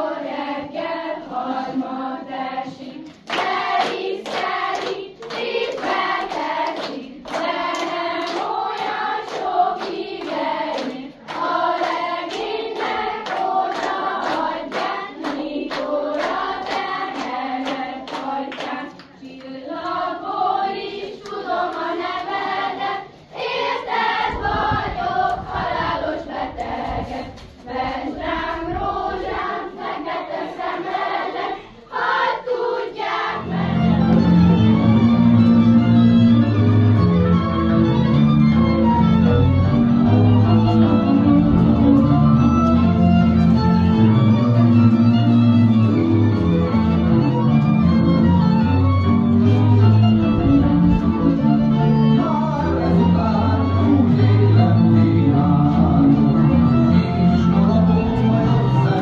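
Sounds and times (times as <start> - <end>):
group of voices singing: 0.0 - 35.4, 48.0 - 59.0
string band with fiddle: 33.5 - 59.0.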